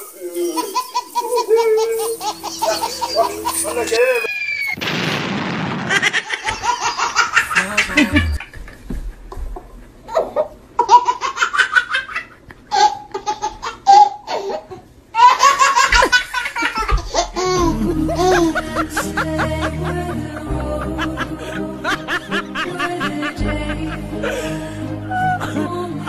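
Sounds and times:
baby laughing hard: 0:00.0 - 0:04.7, 0:06.0 - 0:08.5, 0:10.1 - 0:20.2.

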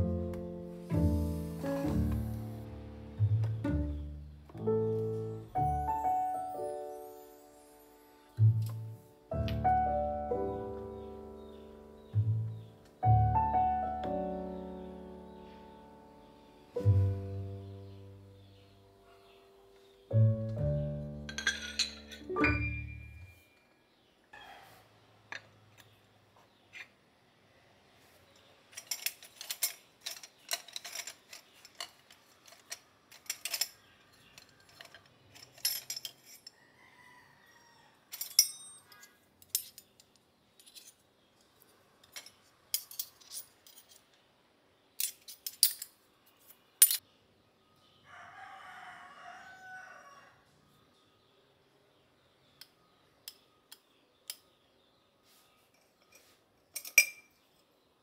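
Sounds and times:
metal utensils clinking: 0:21.3 - 0:23.2, 0:28.7 - 0:36.6, 0:38.1 - 0:40.0, 0:42.0 - 0:44.1, 0:45.0 - 0:46.0, 0:46.8 - 0:47.0, 0:55.7 - 0:57.4.

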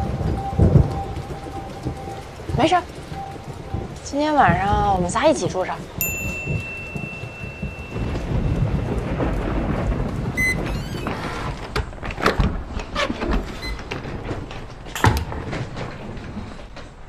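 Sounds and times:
door opening: 0:10.3 - 0:17.0.

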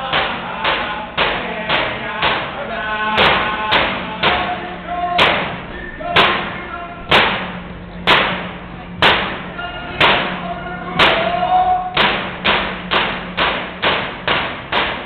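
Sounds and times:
frame drums beating: 0:03.2 - 0:15.0
faint singing: 0:09.5 - 0:12.0.

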